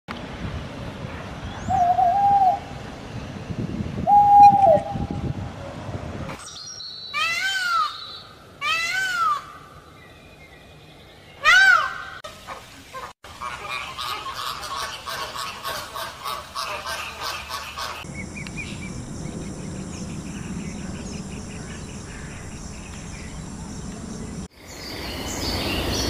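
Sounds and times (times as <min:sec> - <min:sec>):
geese honking: 0:11.5 - 0:18.1.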